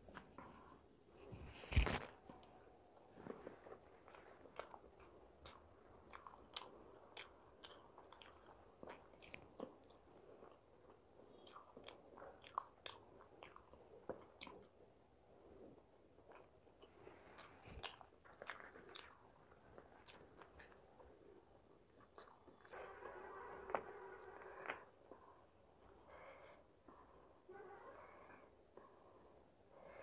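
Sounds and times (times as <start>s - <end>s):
chewing mouth sounds: 3.4s - 14.9s, 16.2s - 25.4s.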